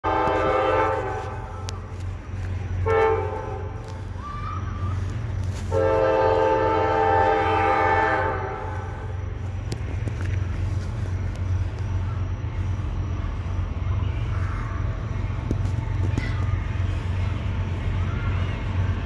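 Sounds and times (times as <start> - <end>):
locomotive air horn blasts: 0.0 - 1.7, 2.8 - 3.8, 5.6 - 9.1.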